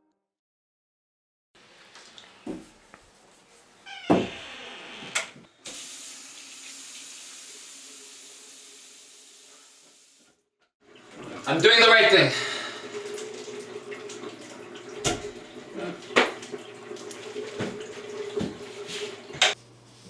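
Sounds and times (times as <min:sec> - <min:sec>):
door creaking open: 0:03.8 - 0:05.4
sink tap running water: 0:05.3 - 0:19.6.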